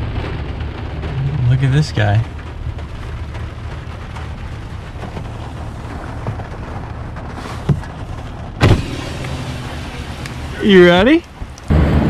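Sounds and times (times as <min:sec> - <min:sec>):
rain pattering on glass: 0:00.0 - 0:11.7
vehicle cab rumble: 0:00.0 - 0:12.0
heavy thump: 0:08.6 - 0:09.3.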